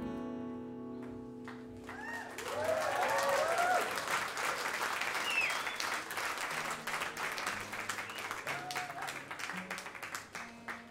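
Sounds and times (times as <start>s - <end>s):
audience applauding: 1.4s - 10.9s
shouts and whistles: 5.1s - 6.0s, 8.0s - 9.2s.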